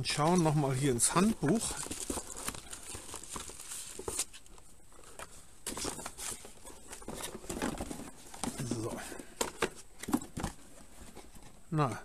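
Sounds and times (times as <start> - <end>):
plastic bags and paper rustling: 0.0 - 11.6.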